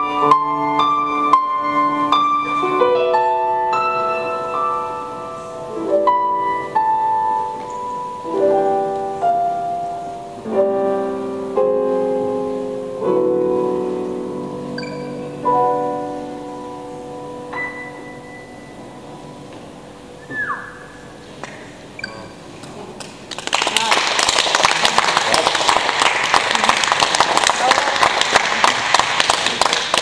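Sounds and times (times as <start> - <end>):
piano chords ringing: 0.0 - 22.6.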